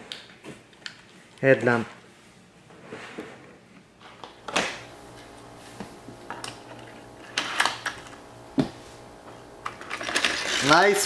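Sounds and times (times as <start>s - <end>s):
steady hum: 4.2s - 11.0s
toy trains clicking and knocking: 9.8s - 11.0s.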